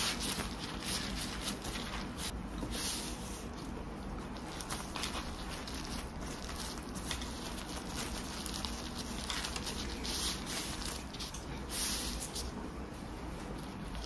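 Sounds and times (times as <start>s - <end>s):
gloves and seaweed rustling: 0.0s - 12.4s.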